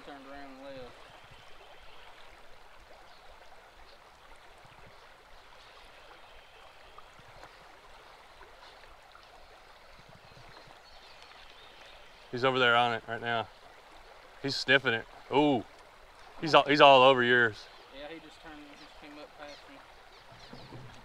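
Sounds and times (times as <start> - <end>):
creek water flowing: 0.0 - 21.0.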